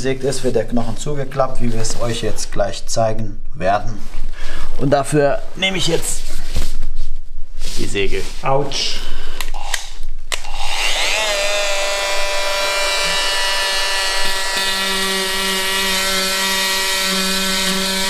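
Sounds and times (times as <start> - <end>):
electric bone saw whine: 9.6 - 18.0.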